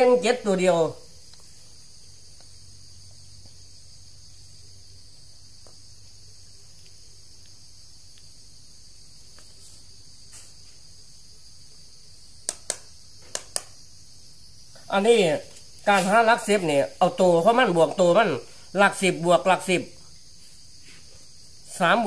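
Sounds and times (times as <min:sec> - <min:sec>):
high-pitched insect chorus: 0:00.0 - 0:22.0
sharp clicks: 0:12.4 - 0:13.8.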